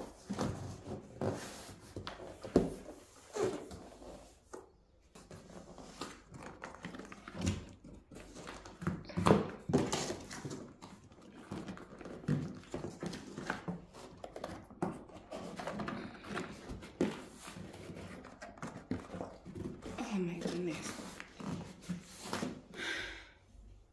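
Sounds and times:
cardboard box rustling and scraping: 9.6s - 22.7s.

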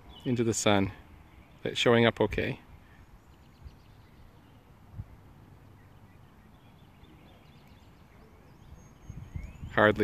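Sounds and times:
faint bird chirps: 2.6s - 10.0s
wind rumble on microphone: 3.5s - 5.3s, 8.4s - 10.0s.

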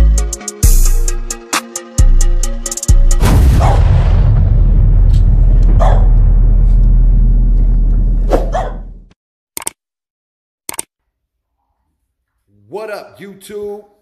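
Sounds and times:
deep rumbling boom: 3.1s - 9.2s
dog barks: 5.8s - 6.1s, 8.3s - 8.9s.

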